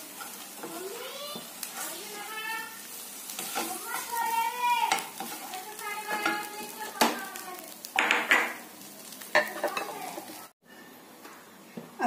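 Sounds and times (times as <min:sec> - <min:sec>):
spatula scraping frying pan: 0:00.0 - 0:02.4, 0:03.2 - 0:07.2.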